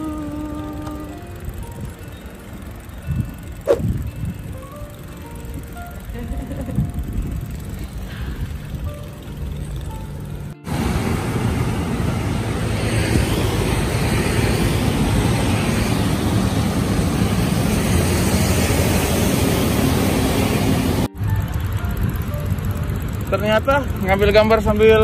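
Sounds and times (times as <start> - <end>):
motorcycles and road traffic: 0.0 - 25.0
wind buffeting microphone: 3.0 - 10.0.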